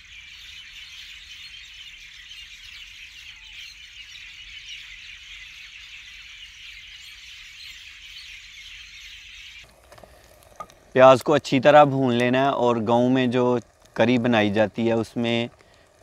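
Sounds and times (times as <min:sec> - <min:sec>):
many birds chirping: 0:00.0 - 0:09.7.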